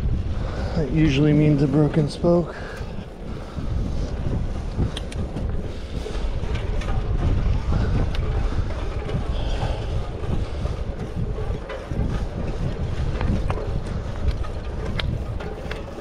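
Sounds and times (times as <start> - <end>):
wind buffeting microphone: 0.0 - 16.0
light clicks: 4.9 - 5.3.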